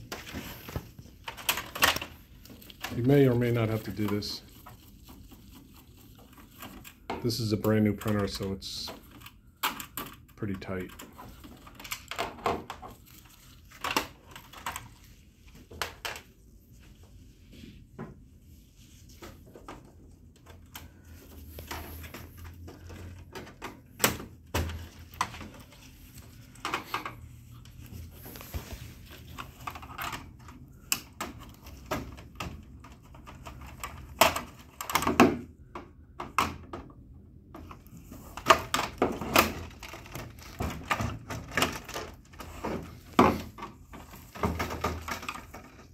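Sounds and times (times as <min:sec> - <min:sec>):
plastic clicks snaps and knocks: 0:29.9 - 0:37.0.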